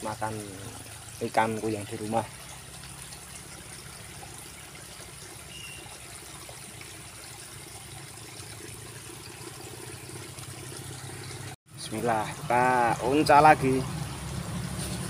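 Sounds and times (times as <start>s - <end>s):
water trickling in a ditch: 0.0s - 15.0s
faint high chirp: 5.5s - 5.9s.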